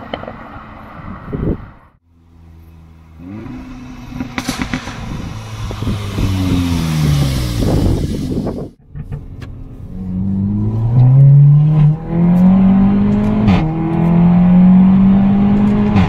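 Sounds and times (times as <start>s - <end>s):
car engine revving: 2.1s - 16.0s
exhaust crackles and pops: 3.2s - 9.9s.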